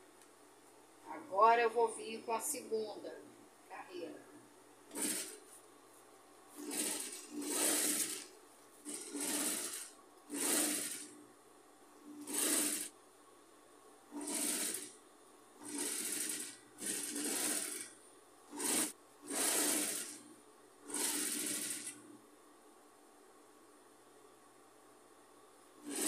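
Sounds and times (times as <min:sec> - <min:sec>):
industrial sewing machine stitching: 0:04.9 - 0:05.4, 0:06.6 - 0:11.2, 0:12.0 - 0:13.0, 0:14.1 - 0:15.0, 0:15.6 - 0:22.0, 0:25.8 - 0:26.0.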